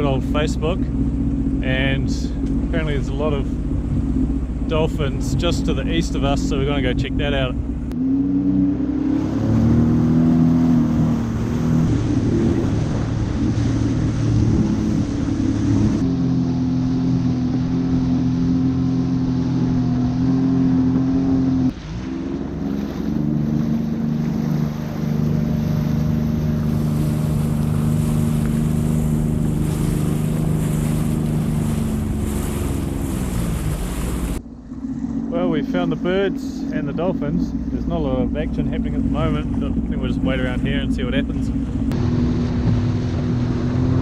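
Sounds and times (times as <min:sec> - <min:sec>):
jet ski engine running: 0:00.0 - 0:44.0
wind: 0:00.0 - 0:44.0
water spray rushing: 0:09.0 - 0:34.4.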